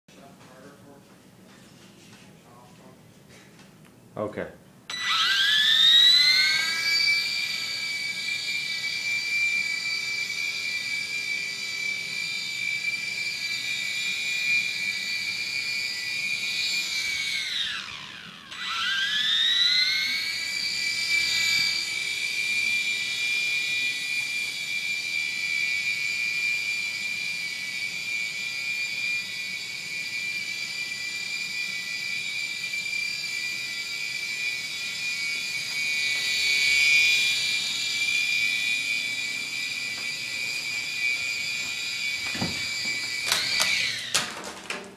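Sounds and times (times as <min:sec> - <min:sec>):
toy helicopter rotors whining: 0:04.9 - 0:44.5.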